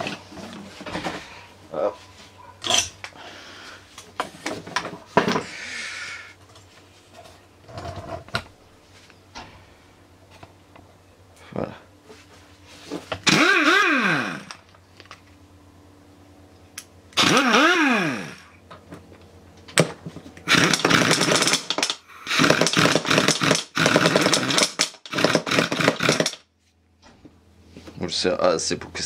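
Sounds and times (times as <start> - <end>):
impact wrench motor spinning: 13.2 - 14.6, 17.2 - 18.5, 20.4 - 26.4
impact wrench hammering: 20.5 - 26.4.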